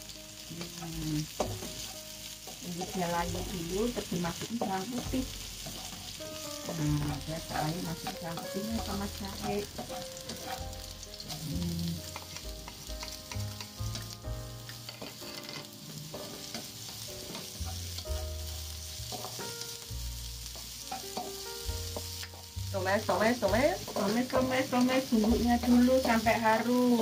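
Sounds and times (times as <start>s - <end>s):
aromatics sizzling in hot oil: 0.0s - 27.0s
spatula stirring in wok: 1.3s - 27.0s.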